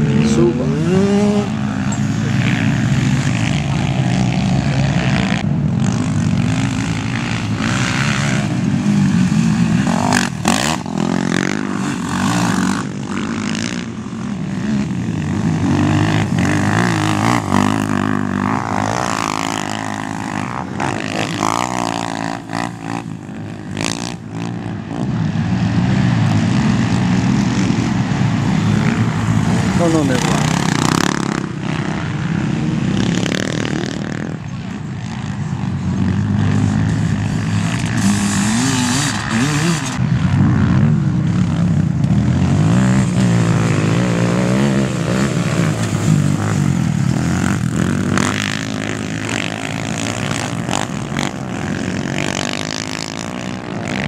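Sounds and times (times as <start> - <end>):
quad bike engines revving: 0.0 - 54.0.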